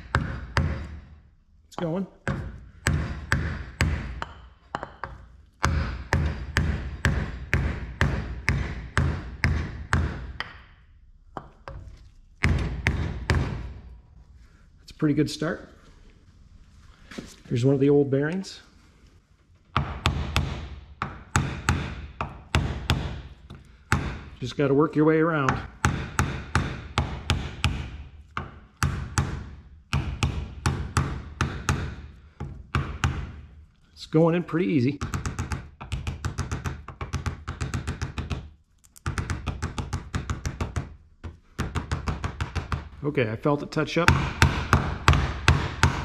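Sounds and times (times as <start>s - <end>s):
hammer knocking on wooden block: 0.0s - 1.0s, 1.8s - 10.6s, 19.7s - 23.3s, 25.4s - 33.3s, 35.0s - 42.9s, 44.1s - 46.0s
hammer tapping metal: 1.8s - 10.6s.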